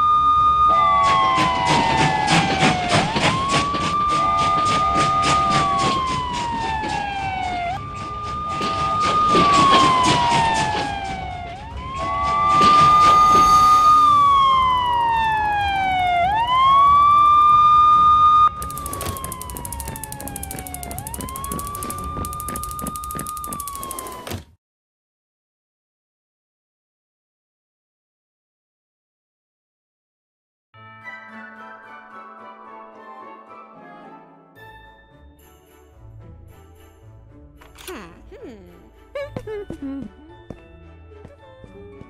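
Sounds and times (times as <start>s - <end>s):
siren wailing: 0.0s - 24.4s
train wheels clicking over rails: 18.6s - 24.3s.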